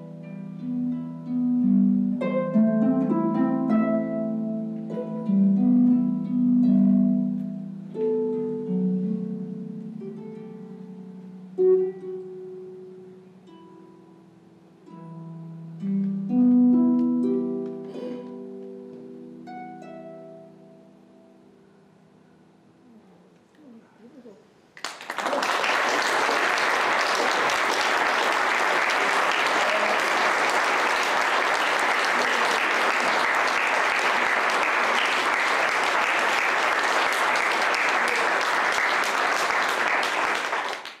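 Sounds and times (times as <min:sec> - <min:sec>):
audience applause: 0:24.8 - 0:41.0.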